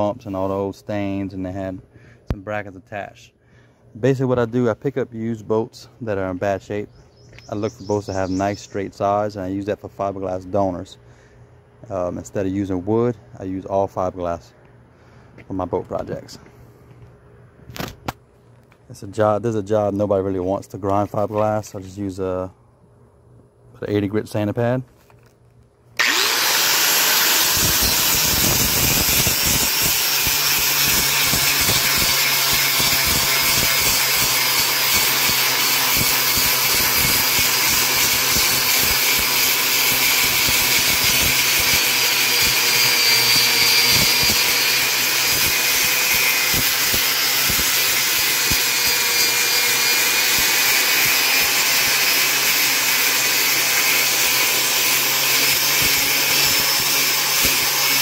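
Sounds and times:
angle grinder sanding fiberglass: 0:26.0 - 0:58.0.

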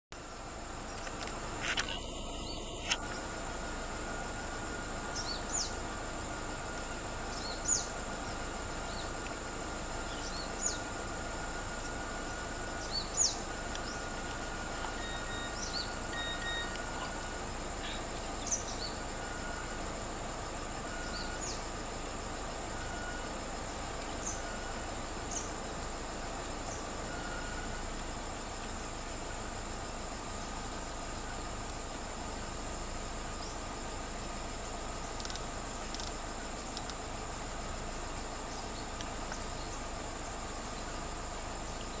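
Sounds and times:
background hiss: 0:00.2 - 0:42.0
high insect drone: 0:00.2 - 0:42.0
bird sharp downward call notes: 0:14.5 - 0:18.6.

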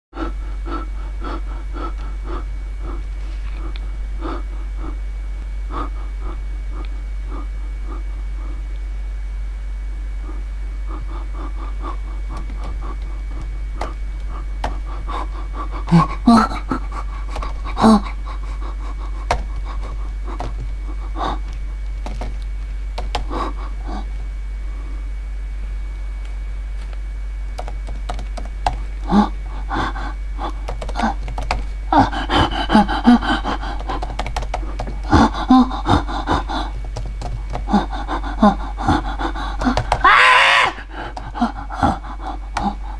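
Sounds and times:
low electrical hum: 0:00.2 - 0:42.9
person making panting grunts: 0:10.2 - 0:21.5, 0:23.2 - 0:24.1, 0:29.0 - 0:42.9
laptop keyboard clicks: 0:19.3 - 0:20.8, 0:22.0 - 0:23.3, 0:30.7 - 0:31.7, 0:33.8 - 0:35.0, 0:36.7 - 0:37.7, 0:39.6 - 0:40.0.

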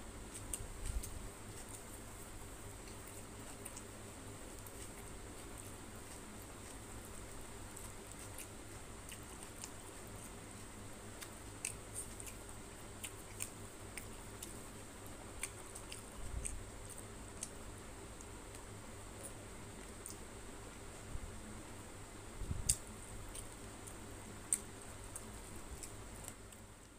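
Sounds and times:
faint steady hum: 0:00.0 - 0:26.9
food squishing by hand: 0:00.1 - 0:21.0
chewing and lip smacks: 0:00.3 - 0:21.0, 0:22.6 - 0:26.9.

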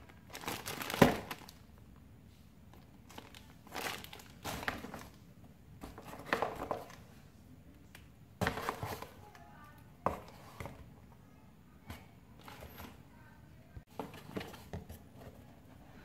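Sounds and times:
cables rustling in cardboard box: 0:00.0 - 0:01.7, 0:02.7 - 0:05.2
plastic bag crinkling: 0:00.0 - 0:01.7, 0:02.7 - 0:05.2.

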